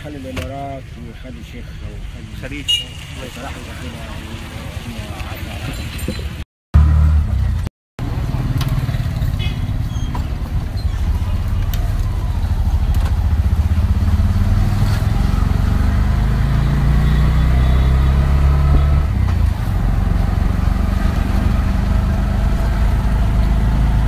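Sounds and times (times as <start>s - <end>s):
road rumble: 0.0s - 24.0s
vehicle engine droning: 6.8s - 24.0s.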